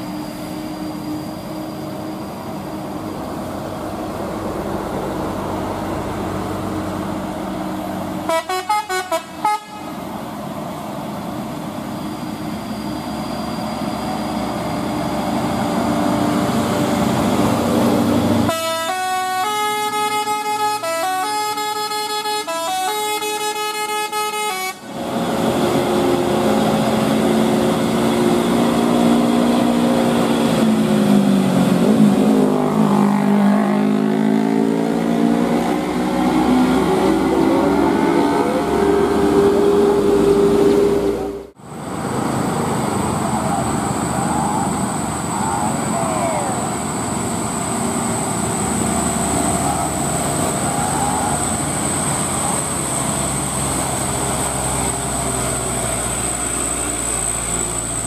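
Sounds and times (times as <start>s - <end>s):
diesel truck engine running: 0.0s - 58.0s
multi-tone truck horn melody: 8.2s - 10.0s, 18.4s - 24.9s.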